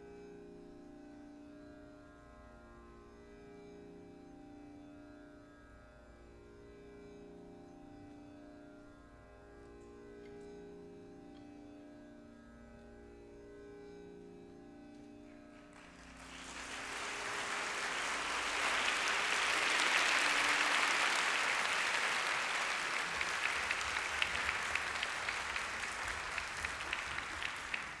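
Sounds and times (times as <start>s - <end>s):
audience applause: 15.5s - 28.0s.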